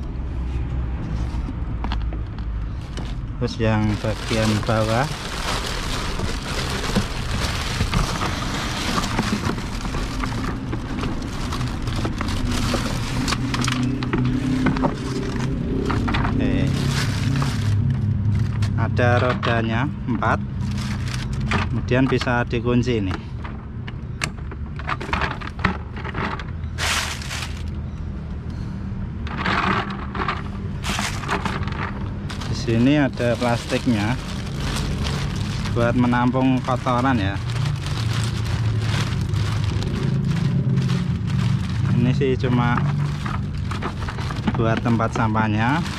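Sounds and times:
plastic scraping: 1.1s - 19.7s, 24.6s - 27.8s, 29.3s - 45.9s
plastic wrapping rustling: 2.6s - 18.8s, 20.5s - 21.8s, 25.8s - 27.8s, 30.7s - 45.9s.

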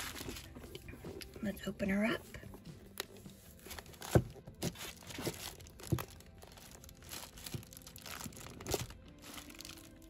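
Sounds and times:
packaging crinkling: 3.0s - 10.0s.

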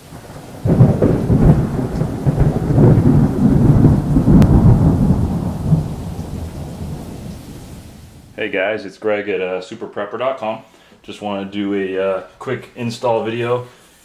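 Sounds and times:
rain: 0.0s - 8.4s
thunderclap rolling into rumble: 0.0s - 8.4s.

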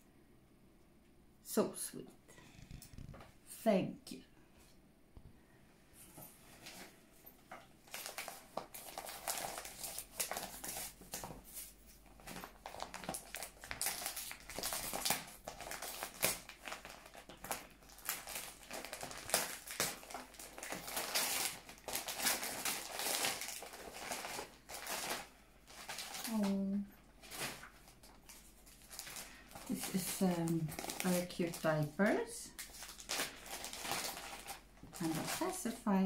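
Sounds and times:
wrapping paper crinkling: 7.8s - 36.0s.

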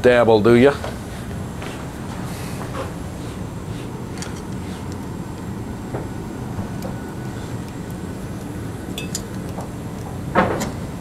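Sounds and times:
low background rumble: 1.3s - 11.0s
small metallic clicks and clinks: 9.0s - 9.4s.

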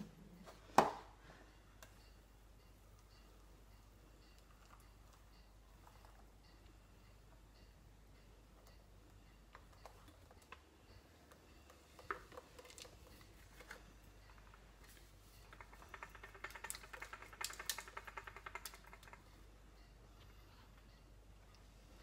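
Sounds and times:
rapid taps and rattles: 15.4s - 19.3s.

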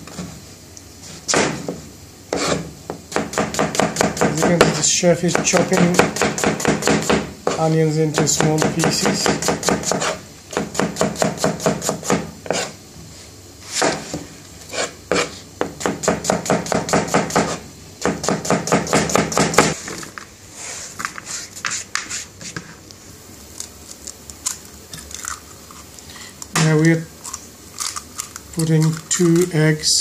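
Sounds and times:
knife chopping on cutting board: 1.3s - 7.6s, 8.2s - 12.7s, 14.7s - 19.8s.

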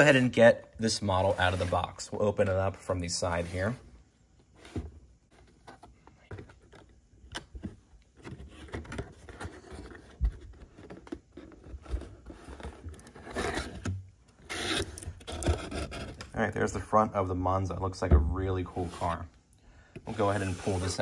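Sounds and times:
cardboard box scraping and rustling: 0.9s - 2.1s, 8.2s - 16.3s, 18.6s - 19.3s, 20.0s - 21.0s.

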